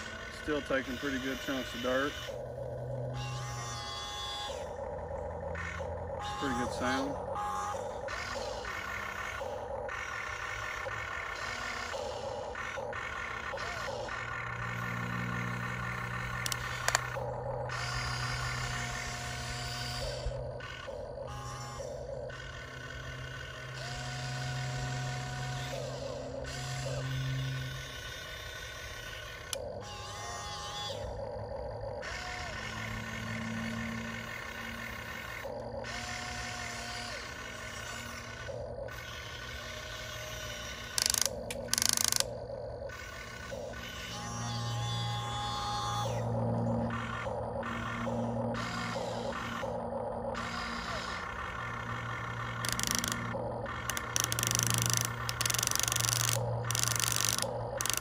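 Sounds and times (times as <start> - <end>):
electric gear motors whining: 0.0 - 58.0
low engine-like drone: 0.0 - 58.0
sharp clicks: 7.8 - 20.9, 27.8 - 29.7, 40.2 - 43.9, 46.5 - 58.0.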